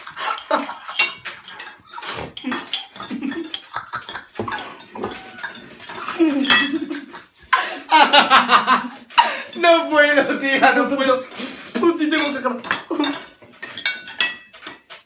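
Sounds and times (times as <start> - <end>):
forks clinking on ceramic plates: 0.0 - 7.4, 8.6 - 15.0
man laughing: 6.2 - 9.4.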